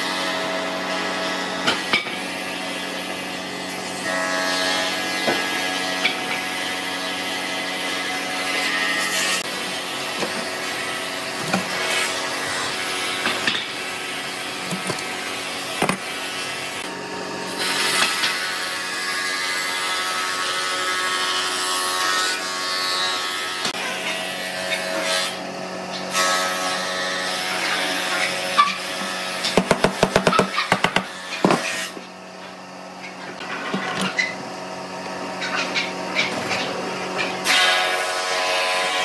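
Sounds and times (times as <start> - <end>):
knocks of wood and clamps: 28.6 - 31.9.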